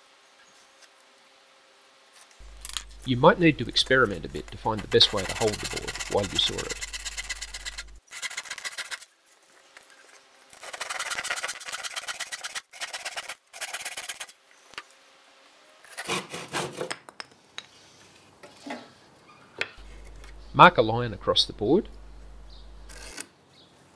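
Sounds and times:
hand saw cutting wood: 2.4 - 9.0.

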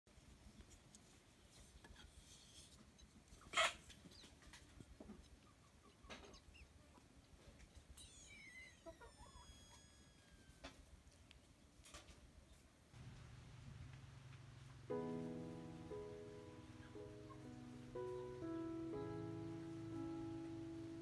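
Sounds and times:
high-pitched animal call: 8.0 - 10.8.

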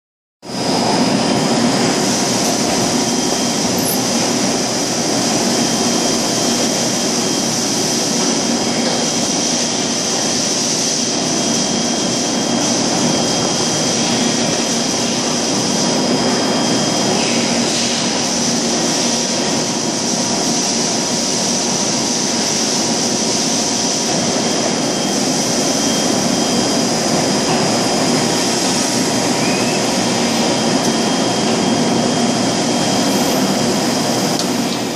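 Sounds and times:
machine hum and hiss: 0.5 - 34.9
steady high tones: 1.0 - 6.2.

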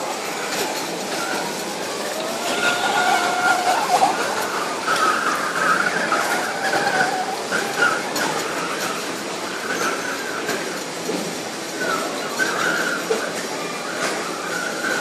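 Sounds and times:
supermarket hubbub: 0.0 - 15.0
wheels squeaking on tiled floor: 0.0 - 15.0.

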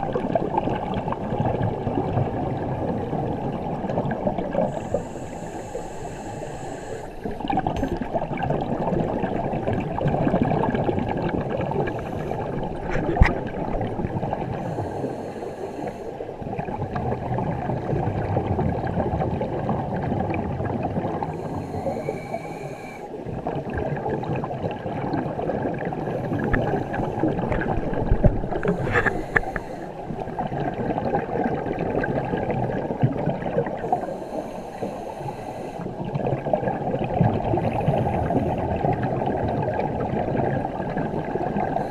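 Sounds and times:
diver breathing through regulator: 4.6 - 8.0, 11.8 - 13.3, 14.4 - 16.3, 21.3 - 23.2, 26.0 - 30.2, 33.7 - 36.0.

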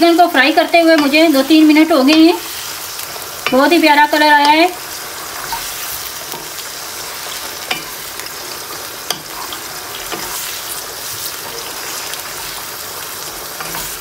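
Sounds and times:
chicken sizzling in hot oil: 0.0 - 14.0
spatula clicking against pan: 0.8 - 1.4, 2.0 - 2.4, 9.1 - 9.3.

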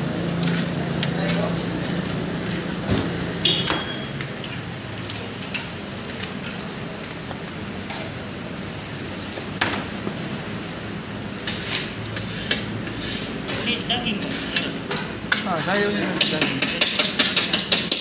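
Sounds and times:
metal tools knocking on griddle: 14.6 - 18.0.

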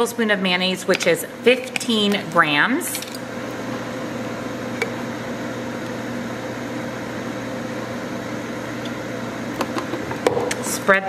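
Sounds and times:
air fryer fan whirring: 0.0 - 11.0.

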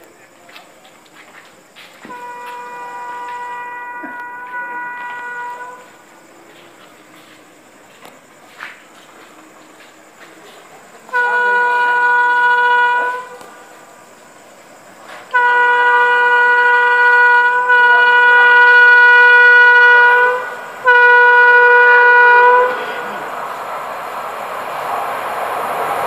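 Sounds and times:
train air horn blasts: 2.0 - 6.2, 11.1 - 13.9, 15.0 - 23.5.

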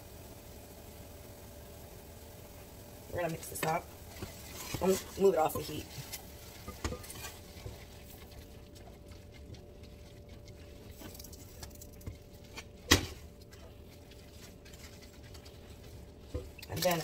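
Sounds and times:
noodles squishing while stirred: 3.2 - 17.0
utensil scraping pan: 4.1 - 17.0.

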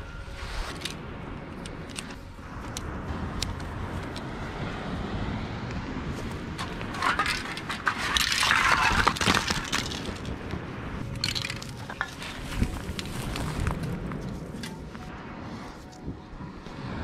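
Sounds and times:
spray paint cans clattering: 6.6 - 10.4, 11.1 - 13.5.

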